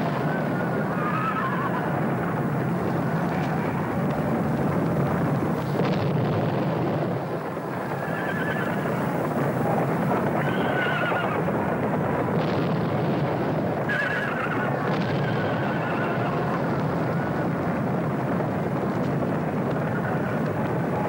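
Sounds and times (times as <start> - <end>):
horses neighing: 0.0 - 2.1, 7.8 - 9.0, 10.2 - 11.5, 13.8 - 16.7
galloping hooves: 0.0 - 21.0.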